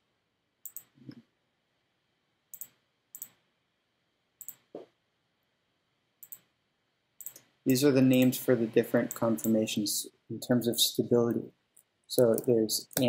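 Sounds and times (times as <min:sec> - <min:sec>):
computer clicks: 0:00.6 - 0:01.2, 0:02.5 - 0:03.4, 0:04.4 - 0:04.8, 0:06.2 - 0:06.5, 0:07.2 - 0:07.5.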